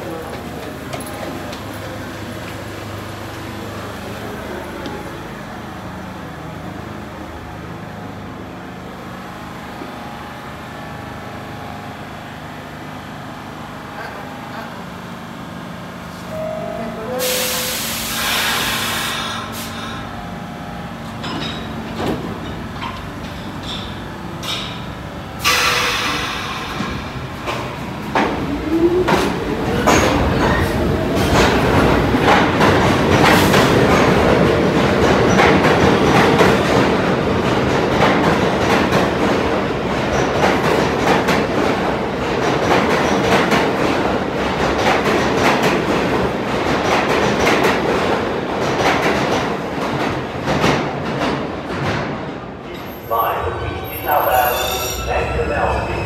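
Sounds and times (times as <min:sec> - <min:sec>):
standing train humming: 0:00.0 - 0:50.5
two-tone descending chime: 0:16.3 - 0:17.3
air hiss: 0:17.2 - 0:20.1, 0:25.4 - 0:27.1.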